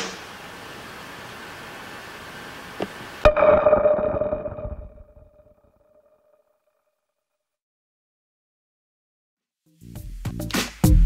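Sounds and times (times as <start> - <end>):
background hiss: 0.0 - 3.2.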